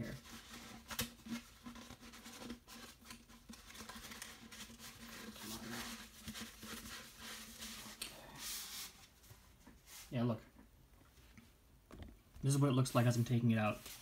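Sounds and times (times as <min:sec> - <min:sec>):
paper and cardboard rustling: 0:00.0 - 0:10.1.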